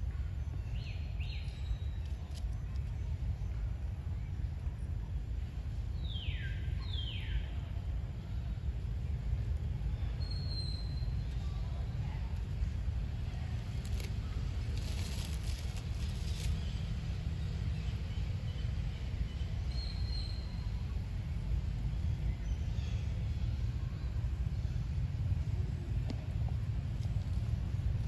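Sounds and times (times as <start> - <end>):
bird chirp: 10.0 - 11.5, 16.2 - 20.9.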